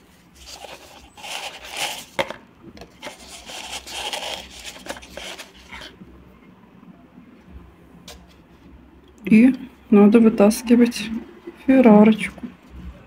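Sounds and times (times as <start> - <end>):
paper napkins rustling and crumpling: 0.0 - 2.3, 2.9 - 6.0.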